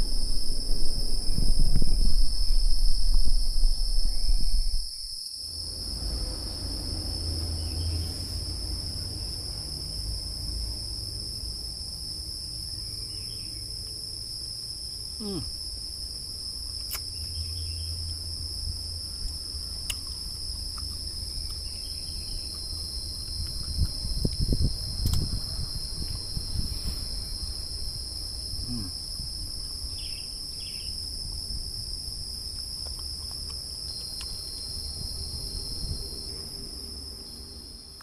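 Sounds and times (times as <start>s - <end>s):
low rumble: 0.0s - 12.9s
insect chorus buzzing: 0.0s - 38.0s.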